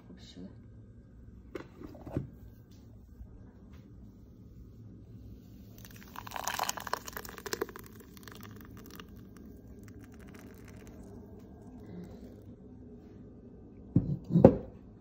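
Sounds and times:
thick liquid splashing into bowl: 5.8s - 12.1s.

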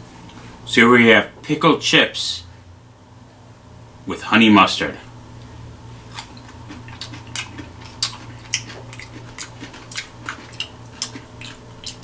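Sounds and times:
low steady hum: 0.0s - 12.0s
person chewing crunchy food: 6.0s - 12.0s.

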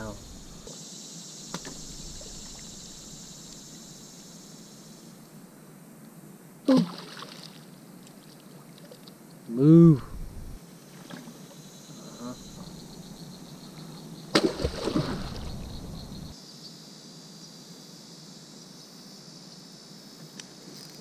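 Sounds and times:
insects droning: 0.0s - 21.0s
water splash: 6.7s - 7.6s, 14.3s - 16.3s
churning water: 14.3s - 16.3s.

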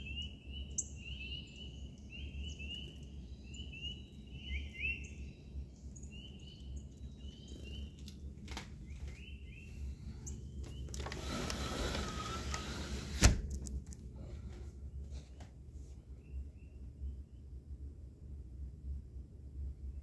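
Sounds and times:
small songbird chirping: 0.0s - 11.3s, 16.0s - 17.8s
scraping rustling with faint squeak: 10.6s - 13.3s.

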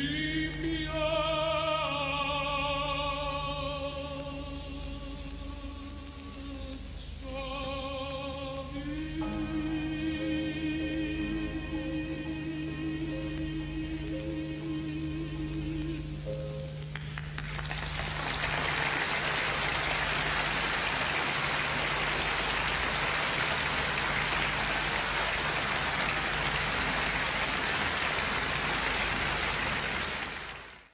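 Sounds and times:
person singing with piano: 0.0s - 16.9s
steady low hum: 0.0s - 29.5s
audience applause: 16.9s - 30.9s.

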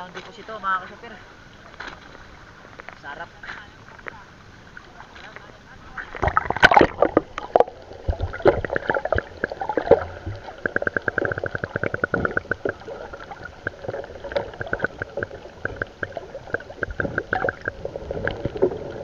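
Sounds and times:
rapid underwater ticking: 0.7s - 19.0s
muffled underwater clicks and knocks: 5.1s - 19.0s
camera splashing into sea: 5.2s - 19.0s.

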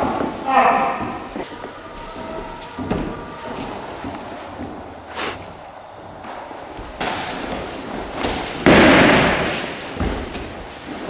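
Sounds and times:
thumps and slams: 2.2s - 4.8s, 6.2s - 11.0s.

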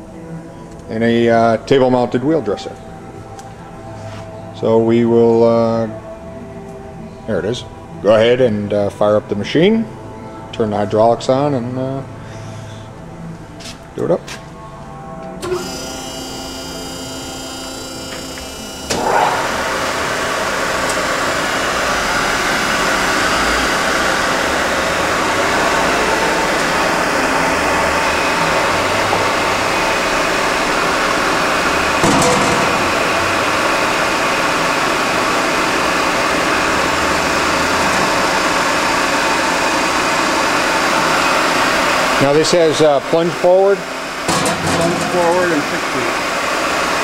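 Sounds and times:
grinder motor and pump whirring: 15.4s - 42.4s, 43.1s - 47.0s.

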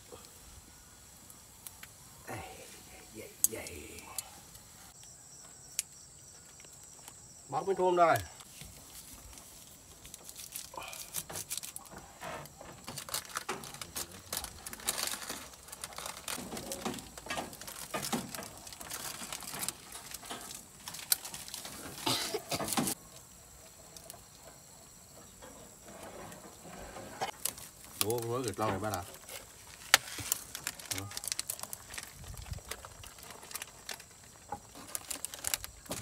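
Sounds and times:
plastic packets crinkling and tearing: 8.1s - 23.3s, 27.3s - 36.0s.

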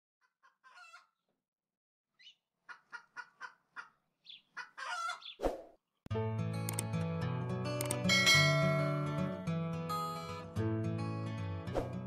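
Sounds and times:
chicken clucking: 0.2s - 1.3s, 2.2s - 5.4s.

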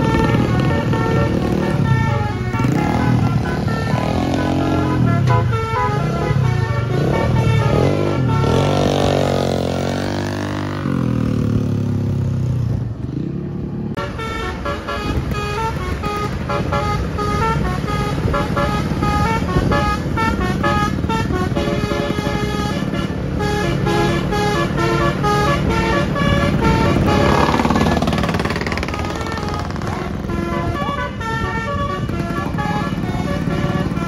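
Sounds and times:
bus horn playing a tune: 0.0s - 10.0s, 14.0s - 34.0s
motorcycle engines: 0.0s - 34.0s
bus engine rumble: 13.9s - 34.0s.

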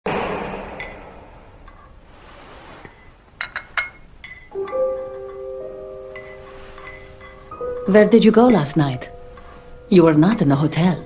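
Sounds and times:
soft music with held notes: 4.5s - 11.0s.

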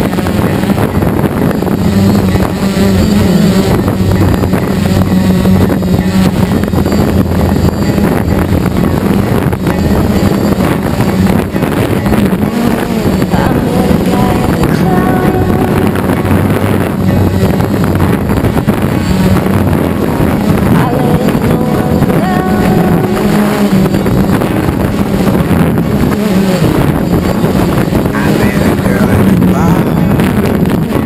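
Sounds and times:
drone propellers buzzing: 0.0s - 31.0s.

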